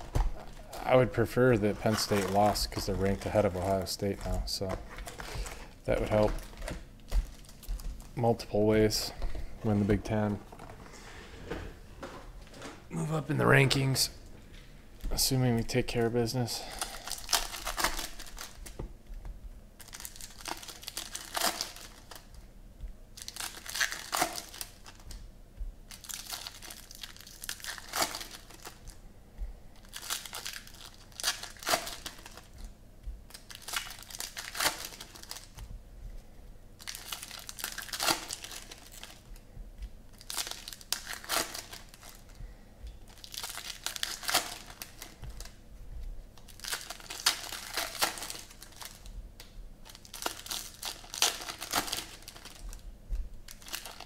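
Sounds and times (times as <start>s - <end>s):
foil wrappers tearing and crinkling: 0.0s - 8.1s, 16.6s - 18.8s, 19.8s - 22.4s, 23.2s - 25.2s, 25.9s - 29.0s, 29.8s - 32.7s, 33.3s - 35.6s, 36.8s - 39.4s, 40.1s - 42.4s, 43.0s - 45.6s, 46.4s - 49.1s, 49.8s - 52.8s, 53.5s - 54.0s.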